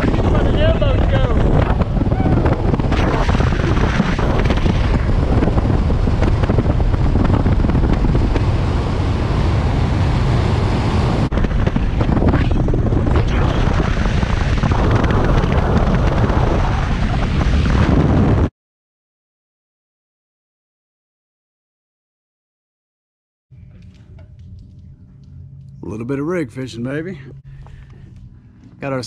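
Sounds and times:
outboard engine drone: 0.0 - 18.5, 23.5 - 29.0
wind buffeting microphone: 0.0 - 18.5.

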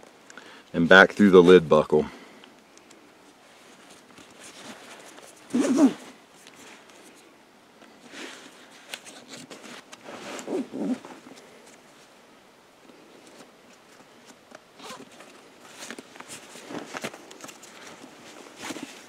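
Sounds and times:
fabric rustling: 3.4 - 7.3, 8.0 - 12.2, 13.1 - 19.0
straps pulled through buckle: 3.8 - 7.2, 8.1 - 11.5, 13.3 - 19.0
loud strap rasps: 5.4 - 6.1.

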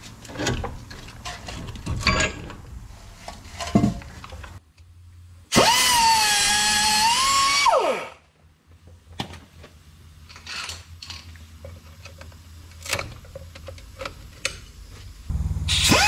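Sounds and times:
pneumatic cut-off wheel whining: 5.5 - 8.1, 15.3 - 16.0.

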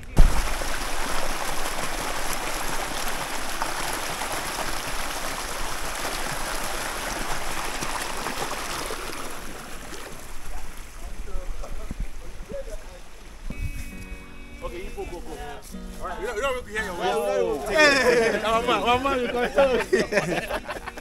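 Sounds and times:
creek splashing over rocks: 0.0 - 14.6.

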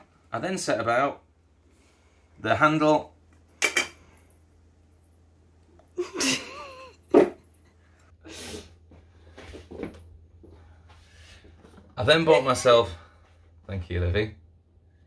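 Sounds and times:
man sneezing: 6.0 - 6.8.

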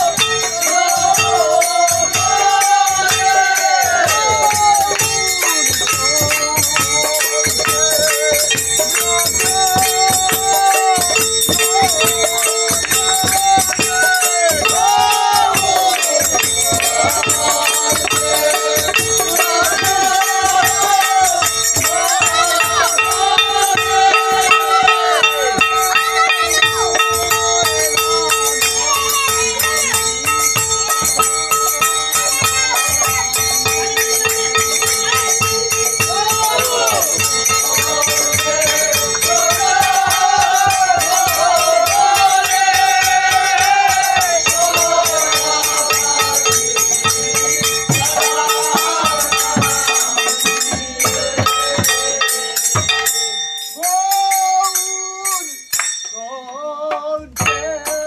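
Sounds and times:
barrel drum: 0.0 - 53.4
men singing together: 0.0 - 58.0
ringing hand cymbals: 0.0 - 58.0
hand claps: 3.9 - 35.7, 54.6 - 56.2.

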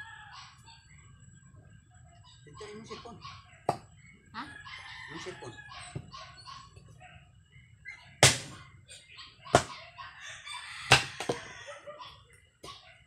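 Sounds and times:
chickens clucking: 0.0 - 13.0
axe chopping firewood: 8.2 - 8.6, 10.9 - 11.4.

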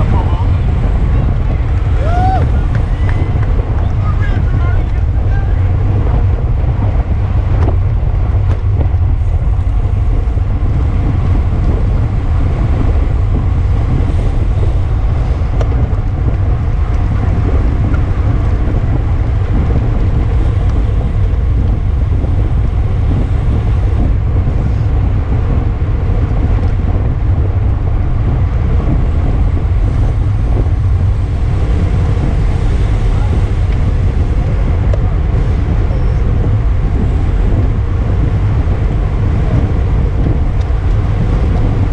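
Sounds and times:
wind buffeting on microphone: 0.0 - 41.9.

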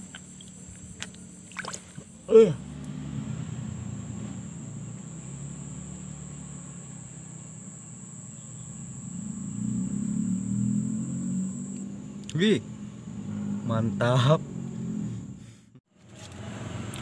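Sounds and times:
insect trilling: 0.0 - 12.5
low engine hum: 0.0 - 17.0.

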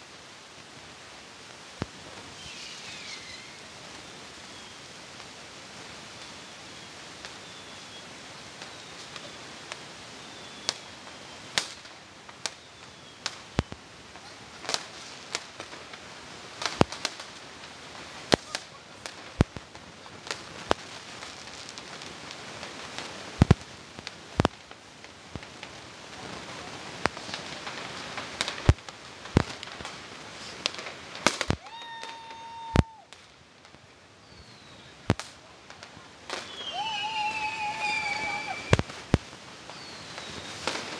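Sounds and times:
distant fireworks crackling: 0.0 - 40.9
firework bangs: 1.7 - 40.9
firework whistle: 2.3 - 4.8, 6.2 - 9.5, 31.2 - 33.2, 36.3 - 40.9.

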